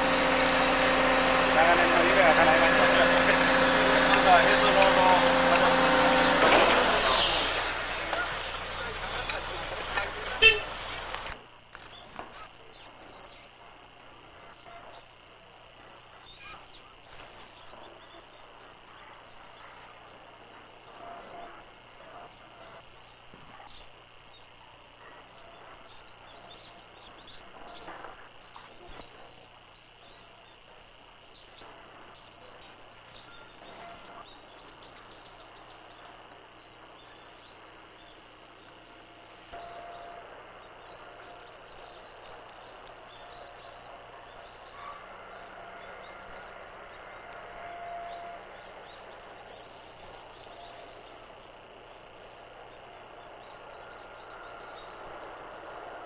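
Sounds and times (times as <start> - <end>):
high-pitched hum: 0.0 - 11.4, 38.3 - 55.5
bird chirps: 39.5 - 56.0.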